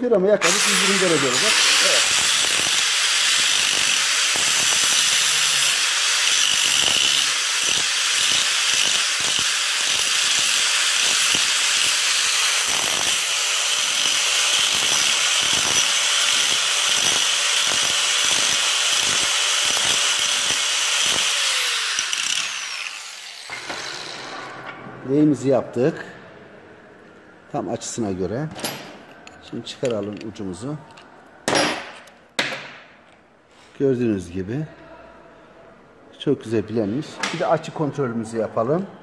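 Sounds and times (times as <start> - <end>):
grinder spinning down: 0.4 - 24.3
angle grinder grinding metal: 0.4 - 24.5.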